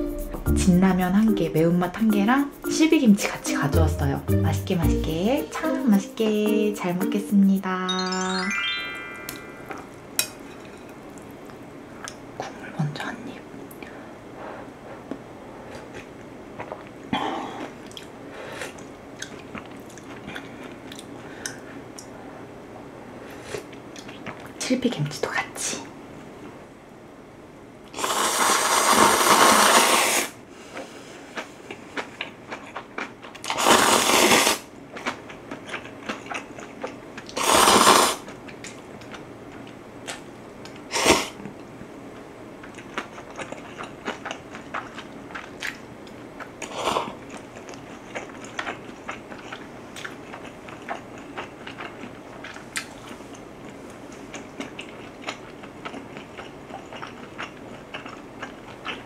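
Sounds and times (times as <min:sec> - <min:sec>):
wet chewing clicks: 0:18.8 - 0:21.1, 0:34.9 - 0:37.4, 0:42.6 - 0:53.4, 0:54.1 - 0:59.0
noodles slurped loudly: 0:28.0 - 0:30.4, 0:33.5 - 0:34.7, 0:37.3 - 0:38.2.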